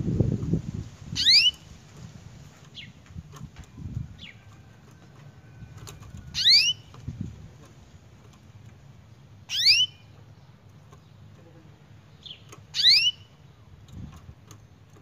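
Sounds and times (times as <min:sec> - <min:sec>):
canary rising calls: 0:01.1 - 0:01.7, 0:06.2 - 0:06.9, 0:09.5 - 0:10.1, 0:12.7 - 0:13.4.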